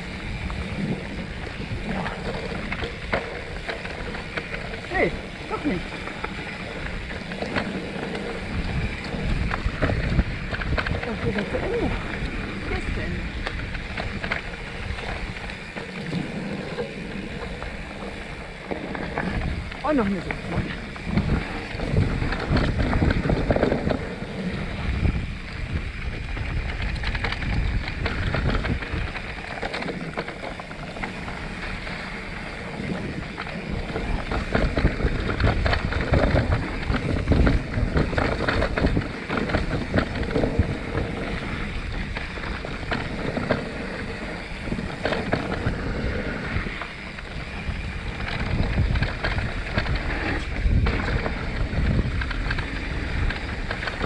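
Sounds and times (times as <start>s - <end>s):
tyres rumbling on dirt: 0.0s - 54.0s
wind buffeting microphone: 0.0s - 54.0s
bike knocks and rattles: 13.2s - 54.0s.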